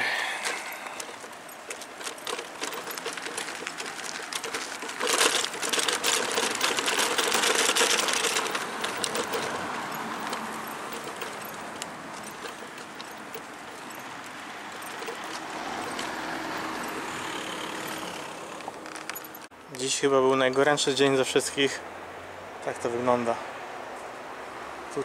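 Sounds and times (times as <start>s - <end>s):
car passing: 0.0s - 19.5s
footsteps crunching on gravel: 0.1s - 19.5s.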